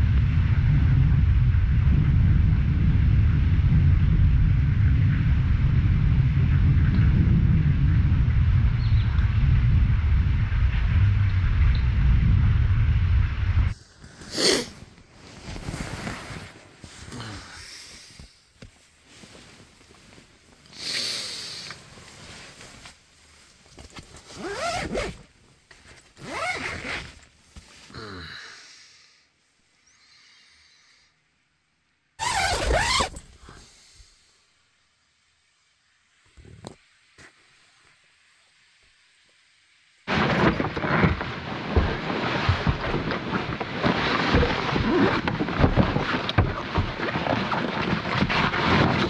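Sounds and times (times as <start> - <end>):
deep rumbling: 0.0 - 13.9
rain: 0.0 - 23.8, 32.8 - 49.0
wind: 0.0 - 49.0
zip being pulled: 14.2 - 14.9, 24.3 - 25.2, 26.2 - 27.2, 32.2 - 33.3.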